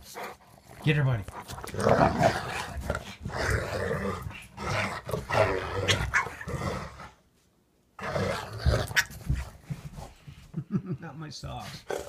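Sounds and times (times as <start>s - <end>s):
dogs growling and grunting: 0.0s - 7.2s, 8.0s - 9.5s, 11.6s - 12.0s.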